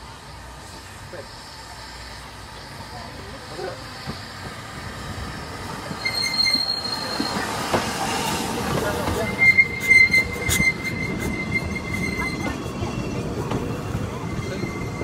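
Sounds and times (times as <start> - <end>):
steam train wheels rumbling: 0.0 - 15.0
high-pitched wheel squeal: 5.9 - 7.6, 9.1 - 13.2, 13.9 - 15.0.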